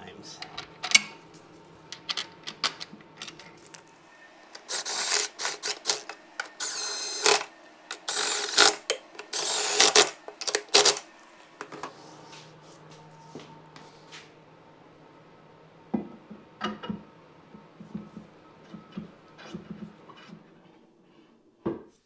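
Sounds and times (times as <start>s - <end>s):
cordless drill driving bolts: 4.6s - 11.0s.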